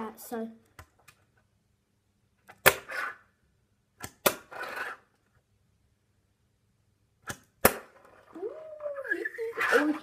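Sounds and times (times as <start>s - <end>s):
small wheels rolling on table: 4.4s - 5.1s.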